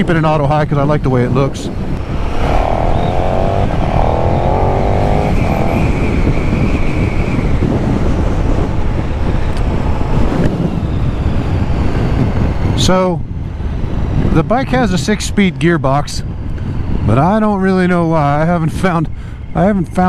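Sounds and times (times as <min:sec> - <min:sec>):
wind on microphone: 0:00.0 - 0:20.0
motorcycle engine accelerating: 0:02.0 - 0:06.8.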